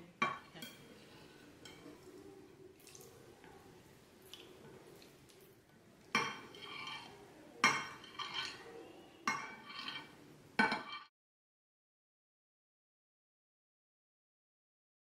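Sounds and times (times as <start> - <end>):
spatula clinking on glass dish: 6.1 - 11.1.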